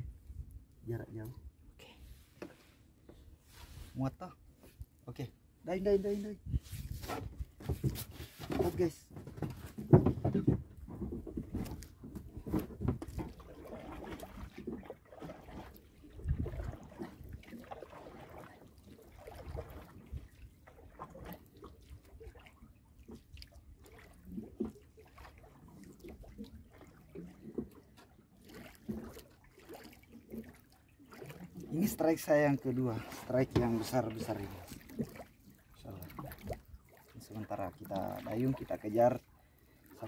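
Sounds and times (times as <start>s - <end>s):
water lapping against canoe hull: 0.0s - 40.0s
low knocks on canoe: 7.1s - 13.4s.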